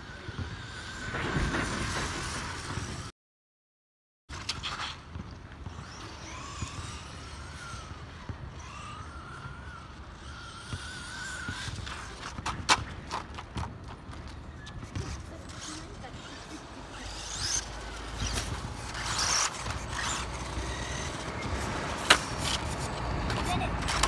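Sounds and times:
toy truck motor whining: 5.8s - 12.4s, 15.0s - 24.0s.

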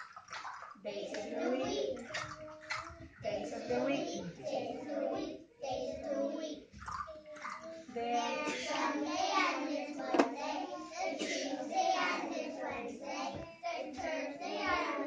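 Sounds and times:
children singing together: 0.8s - 15.0s
sharp clap: 10.1s - 10.4s.

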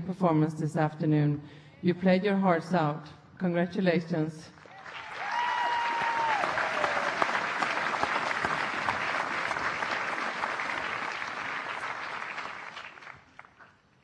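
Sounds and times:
audience applauding: 4.6s - 13.7s.

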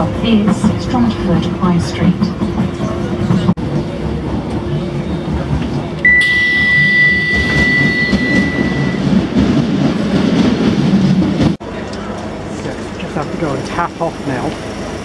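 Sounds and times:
train low rumble: 0.0s - 15.0s
high door beep: 6.0s - 9.3s.

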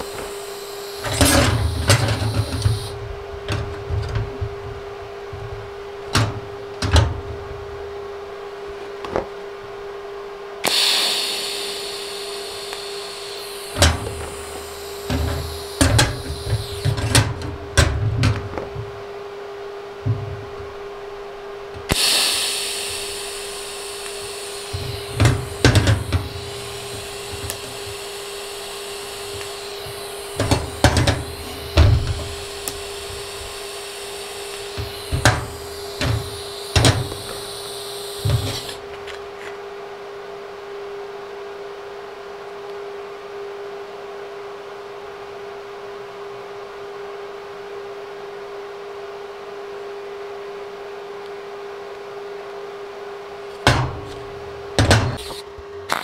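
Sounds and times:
machine hum: 0.0s - 39.4s
welding arc hiss and buzz: 0.0s - 39.5s, 53.4s - 56.0s.

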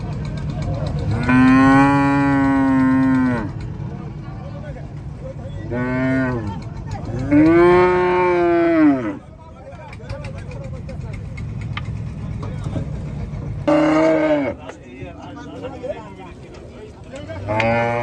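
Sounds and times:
cows mooing: 1.0s - 3.8s, 5.5s - 9.3s, 13.6s - 14.8s, 17.2s - 18.0s.

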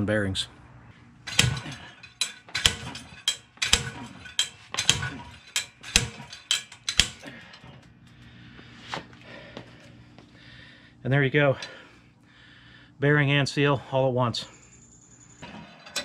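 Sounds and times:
slide hammer metal blows: 1.3s - 7.8s.

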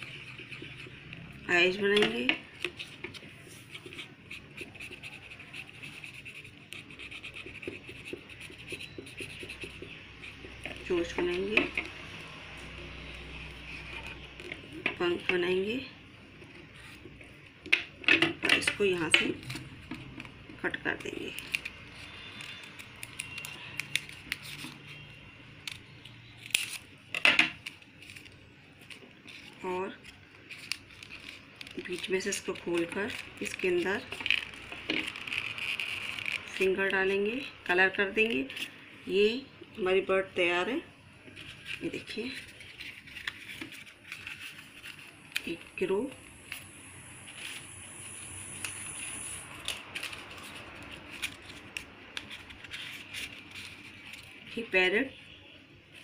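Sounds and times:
pencil scratching on paper: 0.0s - 1.0s, 2.7s - 11.7s
paper handling noise: 0.0s - 12.0s, 18.5s - 37.2s, 41.3s - 46.7s, 48.6s - 54.6s
scissors snipping paper: 1.9s - 12.0s, 18.5s - 26.9s, 27.6s - 37.0s, 48.6s - 54.4s.

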